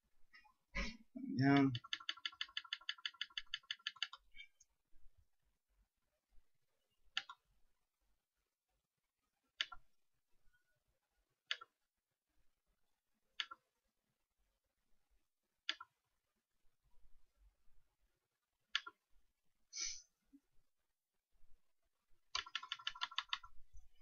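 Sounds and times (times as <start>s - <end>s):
computer mouse clicking: 1.5s - 4.3s, 7.1s - 7.4s, 9.6s - 9.8s, 11.5s - 11.8s, 13.4s - 13.6s, 15.6s - 16.0s, 18.7s - 19.0s, 22.3s - 23.5s.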